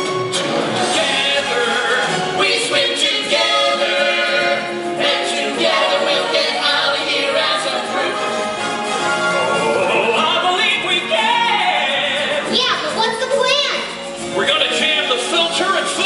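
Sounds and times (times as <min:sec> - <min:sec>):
musical backing: 0:00.0 - 0:16.0
group of voices singing: 0:00.3 - 0:12.6.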